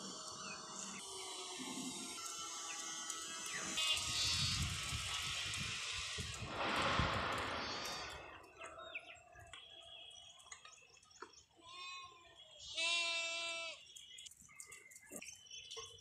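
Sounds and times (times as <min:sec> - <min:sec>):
sheep and goats bleating: 0:03.8 - 0:04.6, 0:11.6 - 0:13.9.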